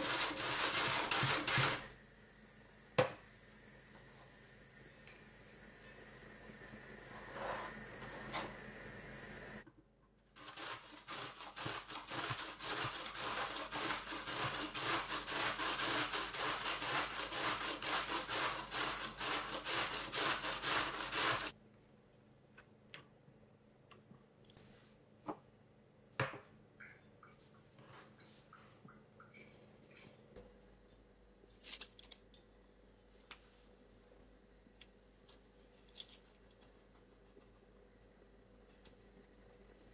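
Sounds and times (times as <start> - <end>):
grating on metal grater: 0.0 - 1.8, 10.4 - 21.5.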